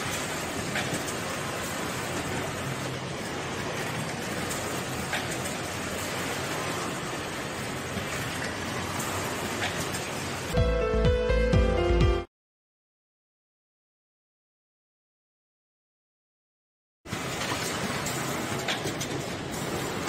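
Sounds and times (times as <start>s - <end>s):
factory sewing machines din: 0.0s - 10.6s, 17.1s - 20.0s.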